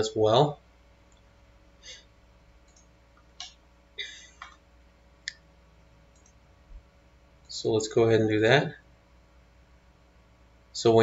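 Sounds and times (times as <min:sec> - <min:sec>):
faint low hum: 0:00.0 - 0:11.0
computer mouse clicks: 0:02.6 - 0:03.6, 0:06.1 - 0:06.4.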